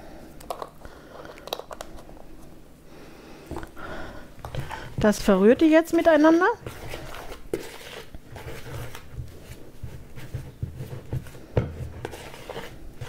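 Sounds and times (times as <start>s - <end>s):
spoon scraping mixing bowl: 4.4s - 13.0s.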